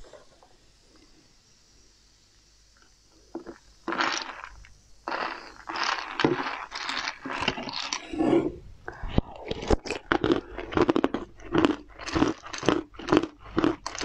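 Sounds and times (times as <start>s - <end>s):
liquid sloshing: 5.1s - 8.6s.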